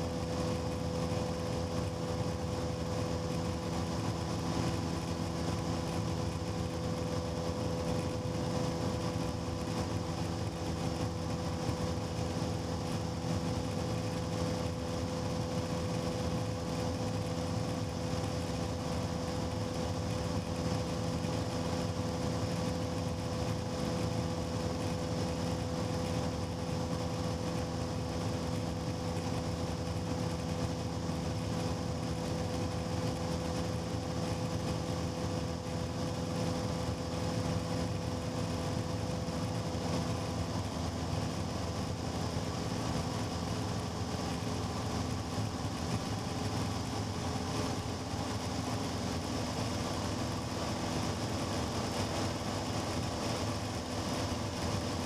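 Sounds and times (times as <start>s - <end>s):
light aircraft engine drone: 0.0s - 55.0s.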